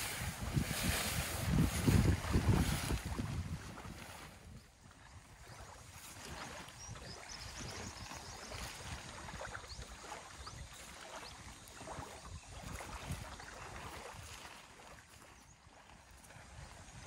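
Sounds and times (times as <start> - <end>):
canvas tarp stirring: 0.0 - 4.4
wind gusting on microphone: 0.0 - 10.8, 11.8 - 14.4.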